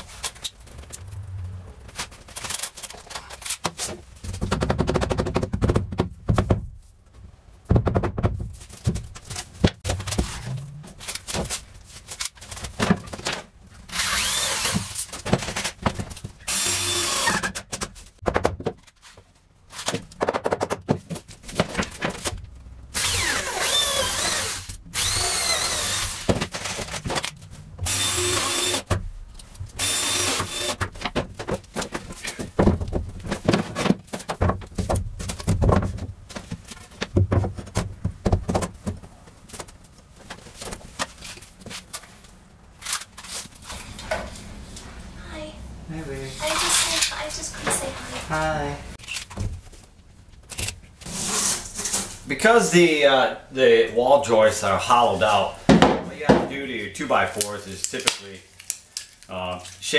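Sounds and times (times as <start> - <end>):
lumber knocking and thumping: 4.2 - 6.8, 7.6 - 10.7, 17.7 - 18.8, 30.8 - 39.2, 55.7 - 56.6
cordless drill driving into wood: 13.9 - 14.9, 16.5 - 17.5, 23.0 - 26.3, 27.9 - 28.9, 29.8 - 30.8.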